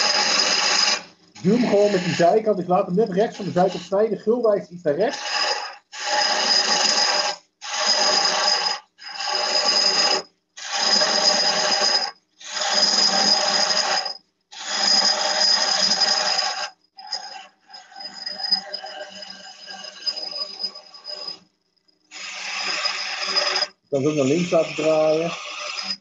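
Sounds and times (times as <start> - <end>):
lathe gouge cutting wood: 0.0 - 16.7, 22.1 - 26.0.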